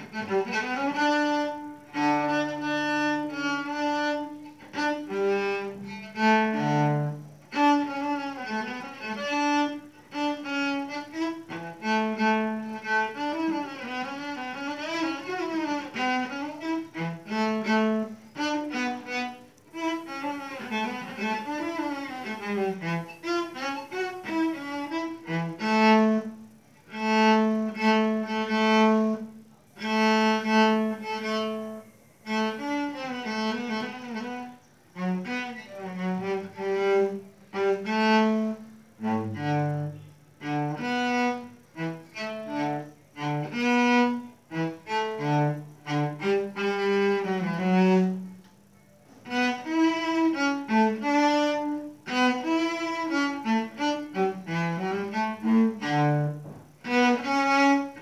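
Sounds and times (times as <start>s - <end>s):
bowed cello melody: 0.0s - 58.0s.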